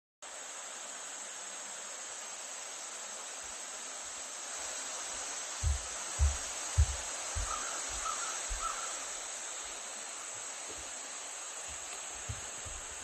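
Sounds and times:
high-pitched insect chorus: 0.3 - 13.0
low thump: 5.6 - 7.6.

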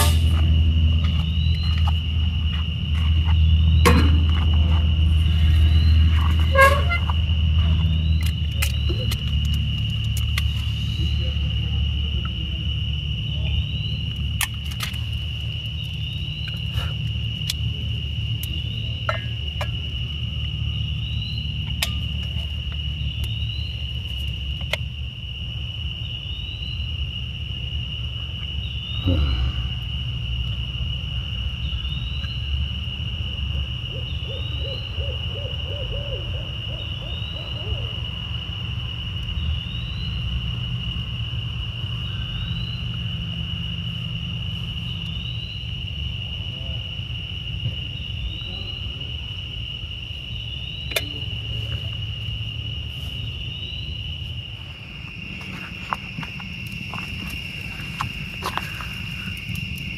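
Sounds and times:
low steady rumble: 0.0 - 34.0
insects trilling: 0.0 - 59.9
owl hooting: 33.9 - 38.1.

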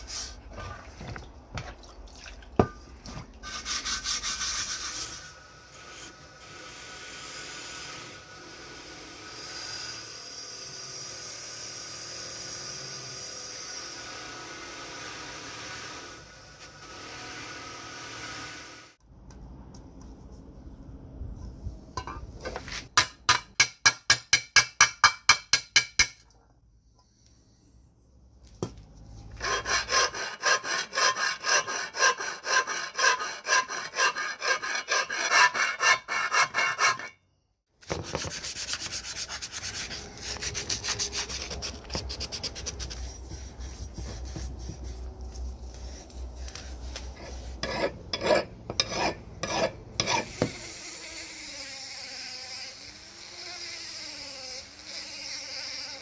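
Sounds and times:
hand scraping metal cover: 29.4 - 37.2.

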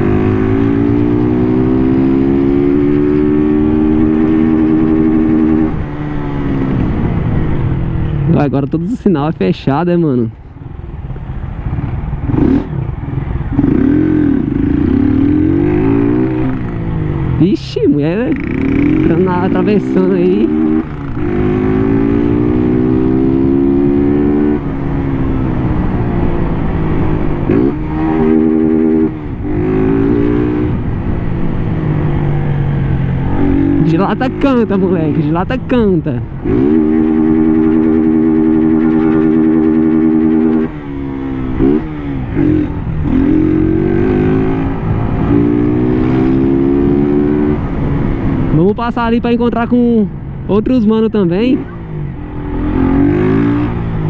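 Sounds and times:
motorcycle engine revving: 0.0 - 9.0, 11.0 - 54.0
low rushing noise: 24.6 - 50.7.

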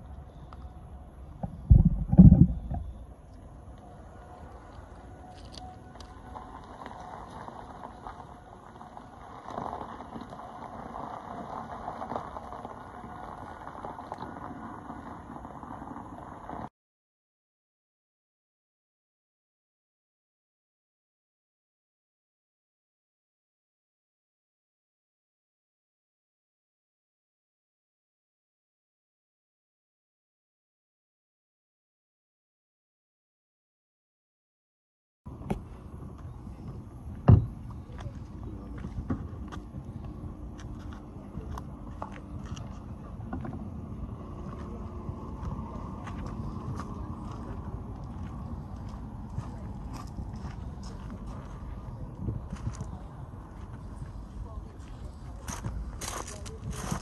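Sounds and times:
low background rumble: 0.0 - 16.7, 35.3 - 57.0
dull thump: 1.4 - 2.9
tyres rolling on gravel: 3.8 - 16.7, 35.3 - 57.0.

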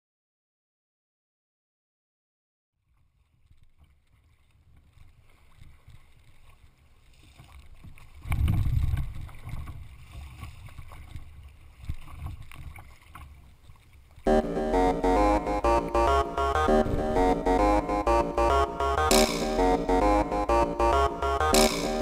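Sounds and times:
water splashing around kayak: 3.0 - 14.2.

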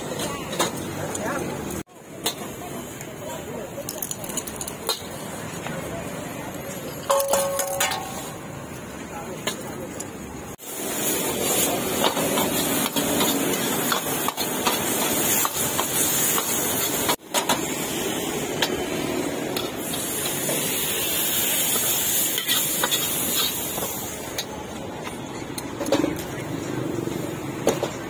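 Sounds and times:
metal utensils clinking and scraping: 6.9 - 8.4, 22.2 - 24.5
food sizzling in a pan: 10.6 - 18.4, 19.7 - 24.3.

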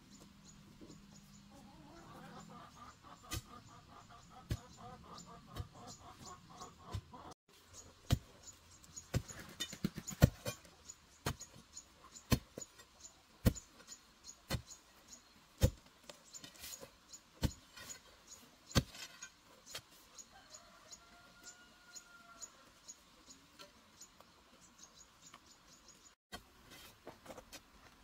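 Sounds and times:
digging tool striking stony dirt: 8.0 - 11.6, 12.2 - 14.7, 15.6 - 18.1, 18.7 - 19.9.

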